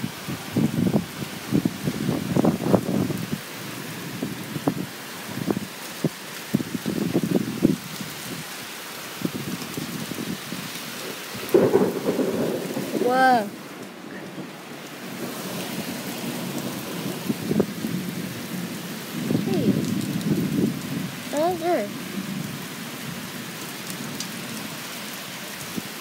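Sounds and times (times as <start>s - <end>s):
heavy rain pouring: 0.0s - 26.0s
low rumbling wind gusts: 0.0s - 26.0s.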